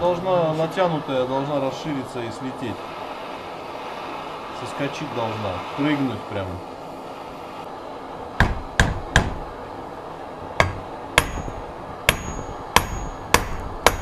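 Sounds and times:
hammer striking metal: 0:08.4 - 0:09.4, 0:10.6 - 0:14.0.

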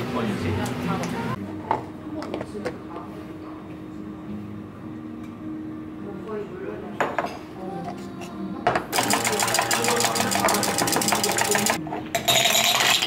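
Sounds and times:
milk frother whirring: 0:08.9 - 0:11.8.

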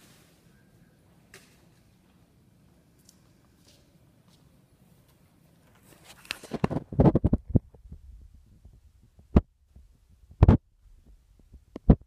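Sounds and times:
camera handling rubbing and knocks: 0:05.8 - 0:07.6.

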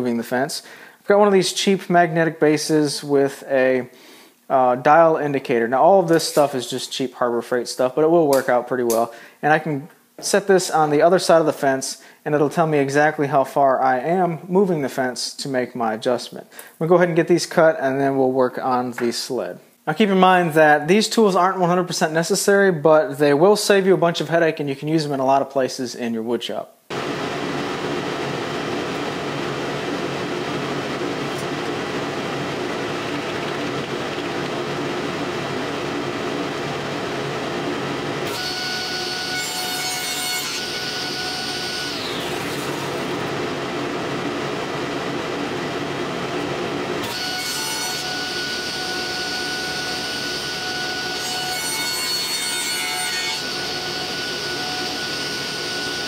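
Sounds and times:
table saw running: 0:26.9 - 0:56.0
saw blade cutting plywood: 0:38.2 - 0:43.3, 0:47.0 - 0:56.0.

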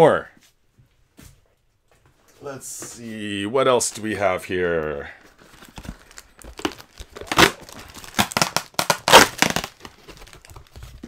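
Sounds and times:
paper crinkling and tearing: 0:05.2 - 0:11.0.

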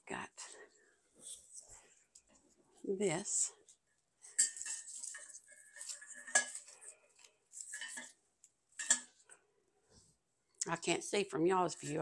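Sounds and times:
stems clinking on metal pitcher: 0:04.3 - 0:08.2, 0:08.8 - 0:09.3.

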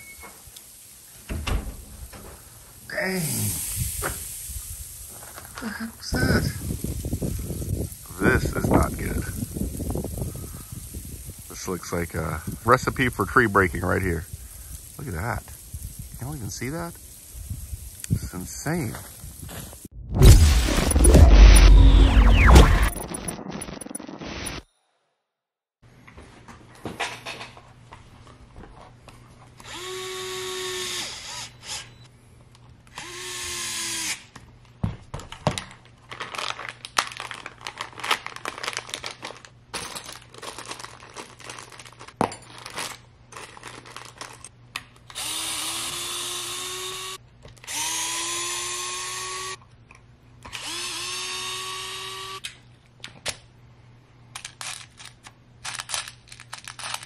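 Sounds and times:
electric screwdriver whine: 0:29.6 - 0:32.1, 0:33.0 - 0:34.2, 0:45.1 - 0:49.6, 0:50.5 - 0:52.5
small screws clicking and rattling: 0:54.3 - 0:57.0.

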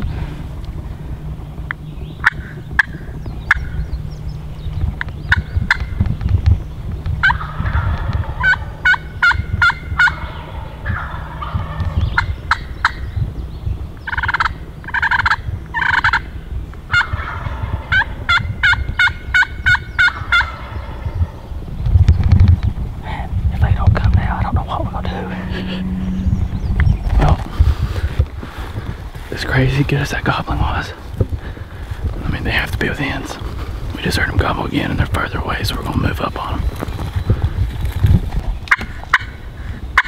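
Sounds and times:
turkeys gobbling: 0:01.7 - 0:03.8, 0:05.0 - 0:06.1, 0:07.0 - 0:13.1, 0:14.0 - 0:21.7, 0:23.1 - 0:38.0, 0:38.6 - 0:40.0
slate turkey call yelps: 0:07.2 - 0:13.0, 0:14.1 - 0:16.3, 0:16.9 - 0:21.4, 0:38.7 - 0:39.4.

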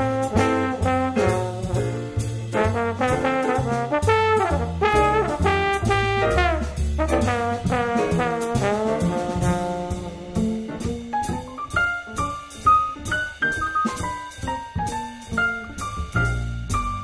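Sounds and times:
jazzy brass music with bass and drums: 0:00.0 - 0:17.0.

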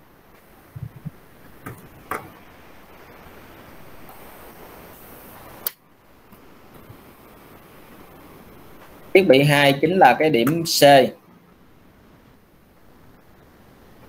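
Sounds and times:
steady low hiss: 0:00.0 - 0:14.0.

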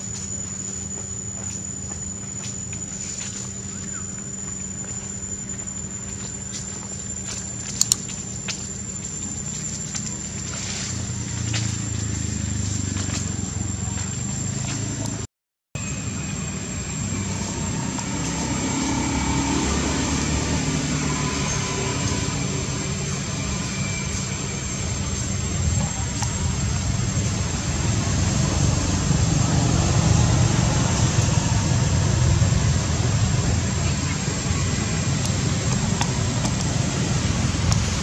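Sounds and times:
low outdoor rumble: 0:00.0 - 0:15.2, 0:15.8 - 0:38.0
faint high-pitched tone: 0:15.8 - 0:35.6.

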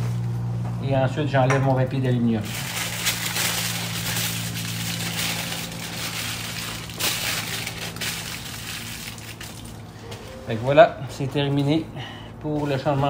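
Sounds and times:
steady low hum: 0:00.0 - 0:13.0
aluminium foil crinkling: 0:02.2 - 0:10.3.

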